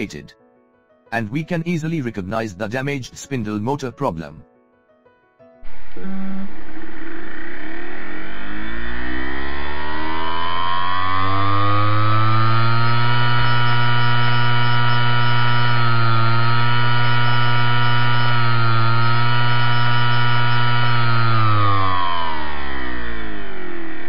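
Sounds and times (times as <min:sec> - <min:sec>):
hard disk motor whining: 0:05.6 - 0:24.0.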